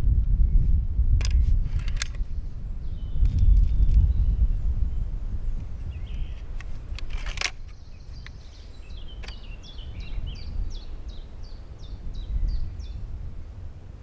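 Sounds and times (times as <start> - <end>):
wind gusting over microphone: 0.0 - 14.0.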